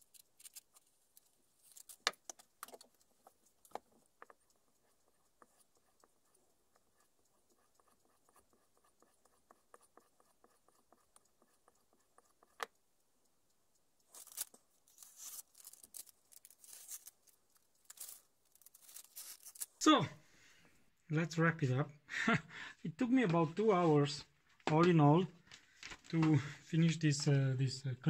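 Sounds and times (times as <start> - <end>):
newspaper crinkling and rustling: 14.2 - 17.3, 17.9 - 19.8.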